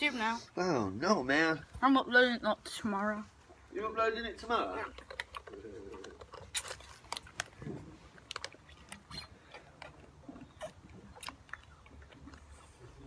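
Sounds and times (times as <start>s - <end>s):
child crunching sweets: 4.6s - 13.0s.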